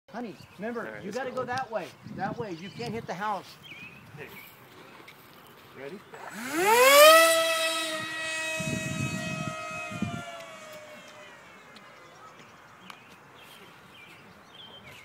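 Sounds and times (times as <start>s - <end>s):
electric motor and propeller whine: 6.1s - 12.5s.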